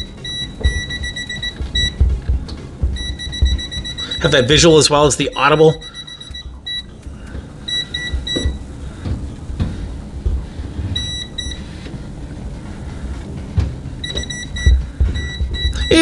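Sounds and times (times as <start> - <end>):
low rumble of handling: 6.6 - 15.9.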